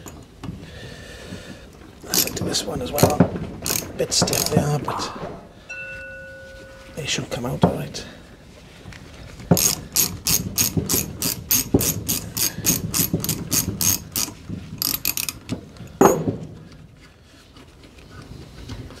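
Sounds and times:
ratchet wrench clicking: 2.1s - 2.4s, 3.0s - 4.6s, 9.6s - 15.6s.

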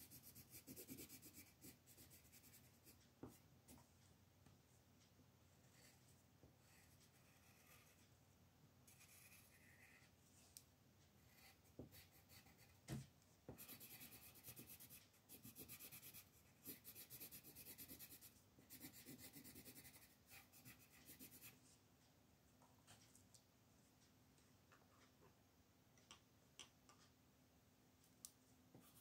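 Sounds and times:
pencil scratching on paper: 0.0s - 3.4s, 5.7s - 8.0s, 8.9s - 10.2s, 11.2s - 12.9s, 13.5s - 21.6s
pencil tap: 12.8s - 13.8s.

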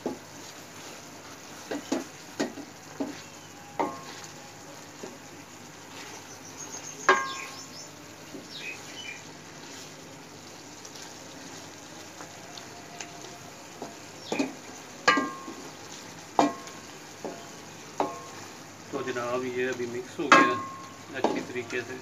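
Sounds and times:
meat sizzling in a pan: 0.0s - 22.0s
wooden spoon knocking on metal pan: 1.6s - 3.2s, 3.8s - 4.3s, 7.1s - 7.5s, 13.7s - 15.7s, 16.3s - 18.4s, 20.3s - 21.6s.

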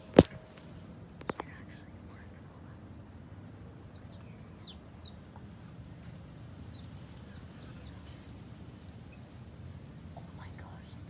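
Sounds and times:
low steady rumble: 0.0s - 11.0s
chickens chirping: 2.4s - 9.4s.

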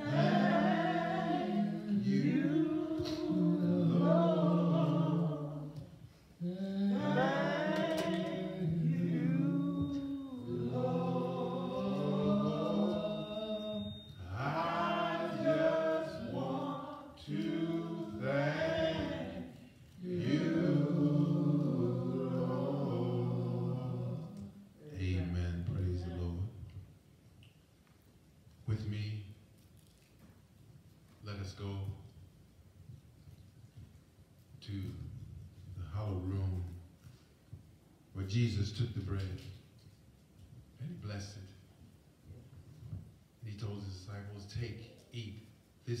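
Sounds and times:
man singing a hymn: 6.5s - 19.1s.

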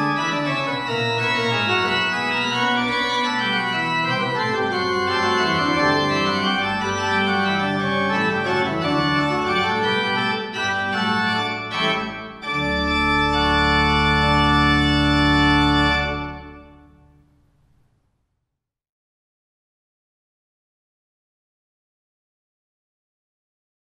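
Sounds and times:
church organ playing: 0.0s - 17.1s.

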